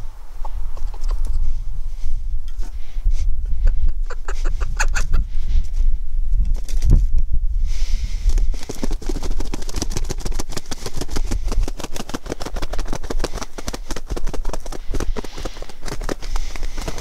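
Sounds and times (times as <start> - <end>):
chicken wings flapping: 4.0 - 5.2, 6.4 - 7.1, 8.2 - 17.0.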